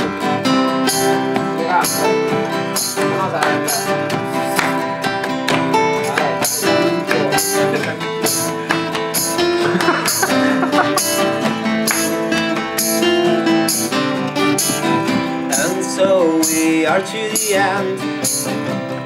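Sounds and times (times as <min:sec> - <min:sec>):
acoustic guitar strumming: 0:00.0 - 0:19.0
hand claps: 0:02.8 - 0:13.0.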